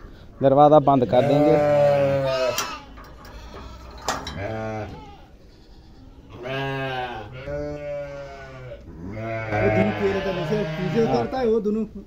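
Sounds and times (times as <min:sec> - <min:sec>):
sheep bleating: 0:00.8 - 0:11.5.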